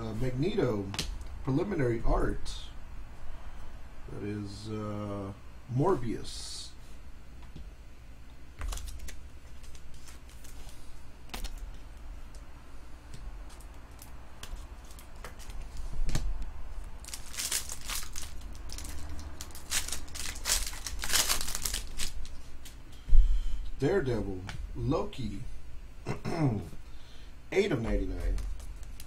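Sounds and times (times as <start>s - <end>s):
foil wrapper crinkling and tearing: 8.6s - 11.7s, 13.5s - 15.8s, 17.0s - 22.4s, 28.6s - 29.0s
cards and sleeves rustling: 8.6s - 12.5s, 13.1s - 22.8s.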